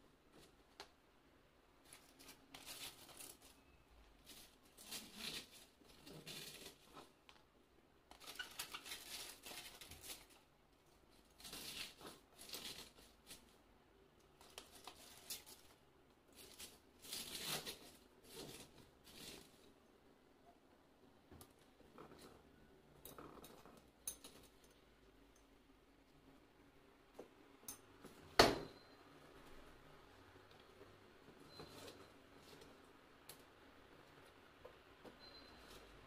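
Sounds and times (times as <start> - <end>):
vegetables rustling and crinkling: 1.7 - 20.0, 29.5 - 36.0.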